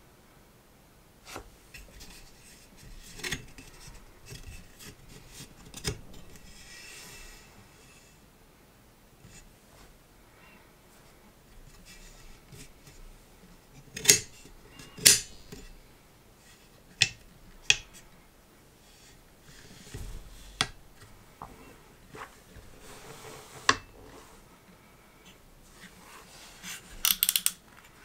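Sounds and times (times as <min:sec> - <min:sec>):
faint rubbing: 0:18.8 - 0:27.0
laptop stand hinges clicking: 0:27.0 - 0:27.6.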